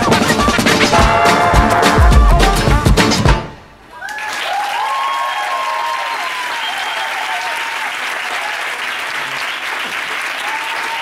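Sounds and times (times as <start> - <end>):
dance music with heavy beat: 0.0 - 3.4
audience applauding: 3.9 - 11.0
people cheering: 3.9 - 11.0.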